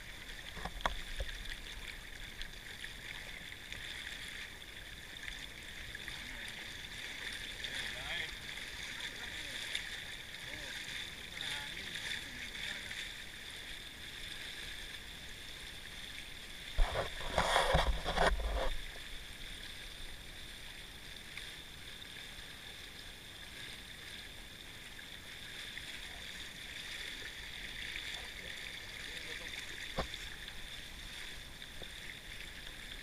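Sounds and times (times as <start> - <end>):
water rushing along hulls: 0.0 - 33.0
hull rubbing and rumbling: 16.7 - 19.2.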